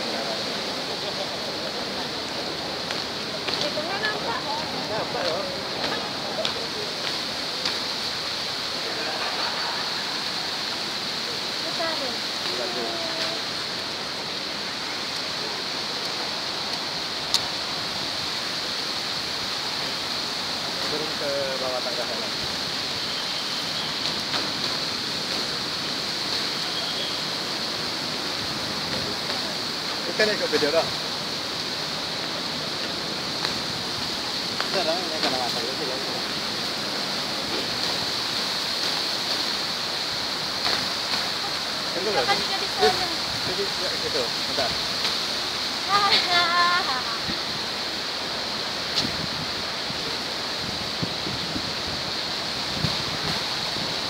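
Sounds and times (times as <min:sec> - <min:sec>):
constant high hiss: 0:00.0 - 0:54.0
fountain water splashing into pool: 0:00.0 - 0:54.0
rushing outdoor background noise: 0:00.0 - 0:54.0.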